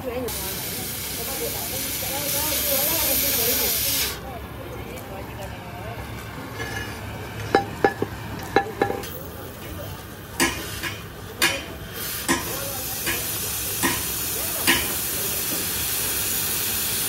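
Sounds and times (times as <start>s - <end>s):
steady hiss: 0.3s - 4.3s, 9.0s - 17.0s
metal-on-metal knocks: 6.6s - 9.1s.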